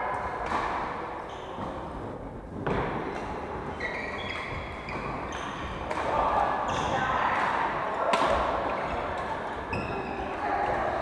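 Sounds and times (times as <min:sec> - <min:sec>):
shoes squeaking on wooden floor: 0:03.7 - 0:05.6.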